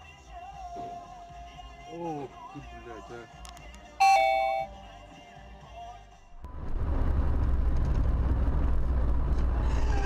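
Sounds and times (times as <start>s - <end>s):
two-tone car horn blast: 4.0s - 4.9s
road and engine noise inside car: 6.4s - 10.0s.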